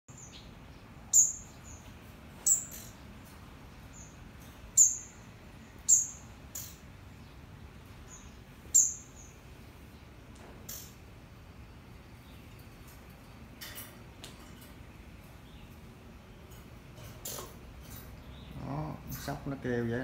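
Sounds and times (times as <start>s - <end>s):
squirrel alarm calls: 0.1s - 3.1s, 3.7s - 7.4s, 8.0s - 9.4s.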